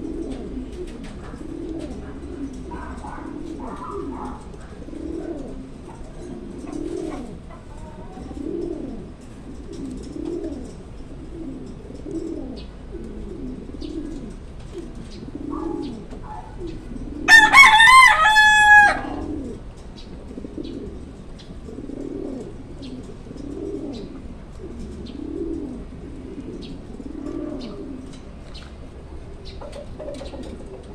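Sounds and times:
pigeon cooing: 0:00.0 - 0:30.9
rooster crowing: 0:17.2 - 0:19.5.

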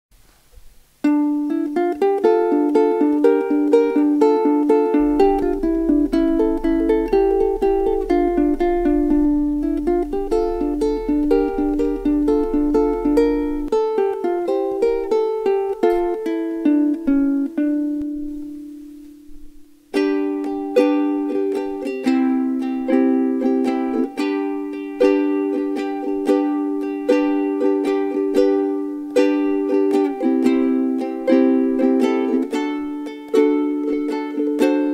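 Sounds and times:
ukulele melody plucked: 0:00.9 - 0:34.9.

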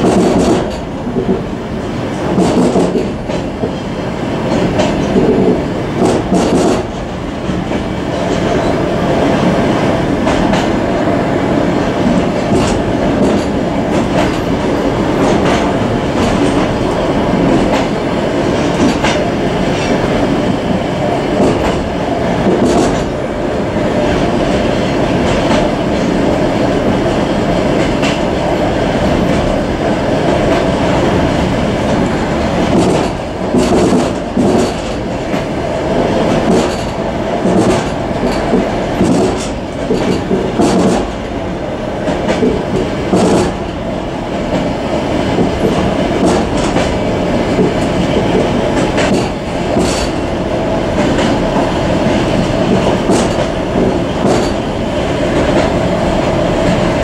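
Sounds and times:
wheels clacking over rail joints: 0:00.0 - 0:08.8, 0:11.8 - 0:20.2, 0:21.3 - 0:23.2, 0:31.9 - 0:35.5, 0:36.1 - 0:41.3, 0:42.0 - 0:43.8, 0:44.4 - 0:50.3, 0:50.9 - 0:54.7
train wheels rumbling on rails: 0:00.0 - 0:57.0.

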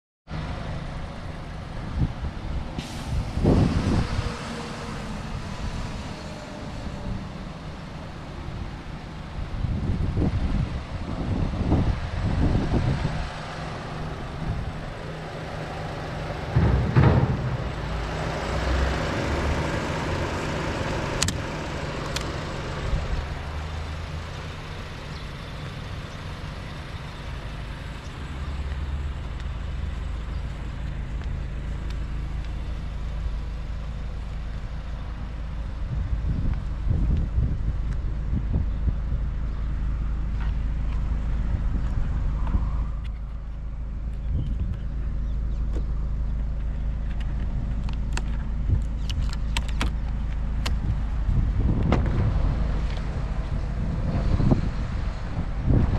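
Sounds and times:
wind gusts on microphone: 0:01.6 - 0:07.3, 0:08.5 - 0:21.8, 0:35.4 - 0:43.5, 0:48.4 - 0:55.9
car engine idling: 0:05.1 - 0:55.8.

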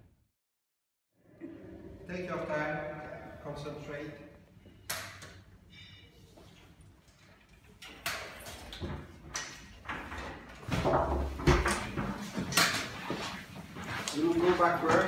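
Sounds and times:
shuffling steps: 0:11.9 - 0:15.0.

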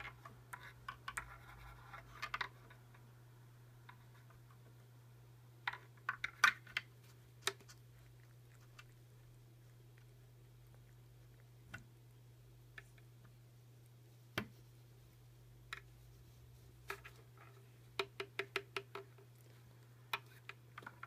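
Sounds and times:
pencil clicks and taps: 0:00.0 - 0:02.8, 0:14.3 - 0:14.6, 0:16.8 - 0:21.0.

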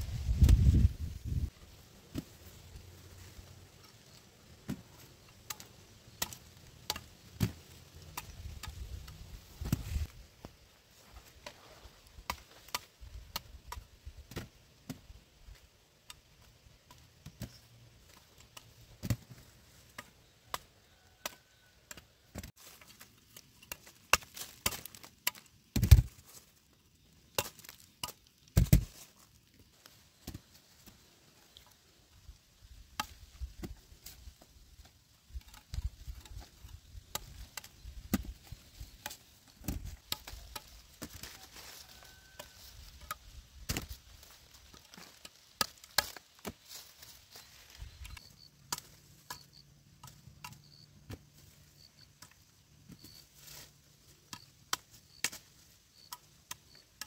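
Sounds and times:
machete chopping roots: 0:05.4 - 0:08.9, 0:23.6 - 0:26.2, 0:27.4 - 0:29.0, 0:42.2 - 0:44.0, 0:44.7 - 0:46.8.

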